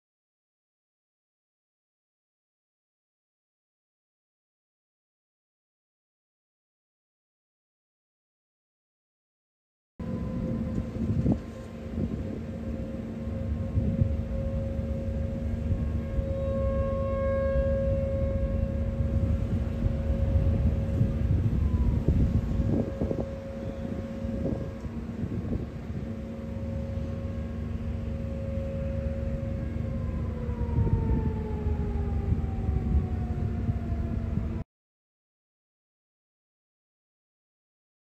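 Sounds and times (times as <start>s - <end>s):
loud low rumbling: 10.0s - 34.6s
warning siren wailing: 10.0s - 34.6s.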